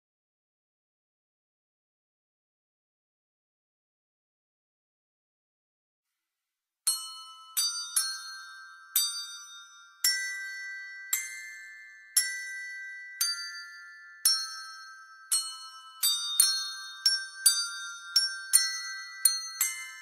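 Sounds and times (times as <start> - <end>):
handbells playing a melody: 6.9 - 20.0.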